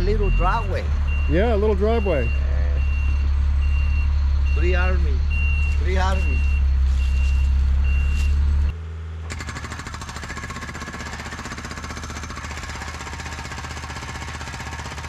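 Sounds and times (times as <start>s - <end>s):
reversing beep: 0.0s - 8.7s
truck engine running: 0.0s - 15.0s
hydraulic breaker hammering concrete: 9.3s - 15.0s.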